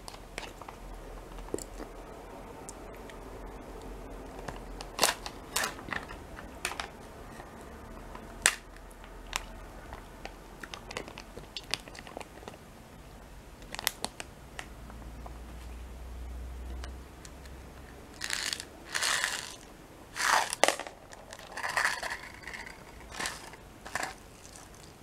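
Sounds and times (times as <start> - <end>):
foil lid crinkling: 18.2 - 25.0.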